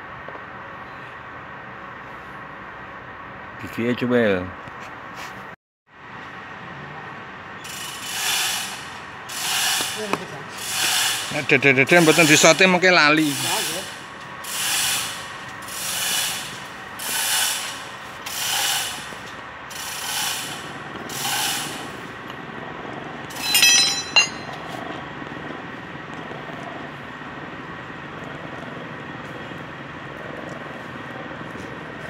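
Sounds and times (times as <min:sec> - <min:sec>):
hydraulic pump hissing: 0:07.7 - 0:19.0.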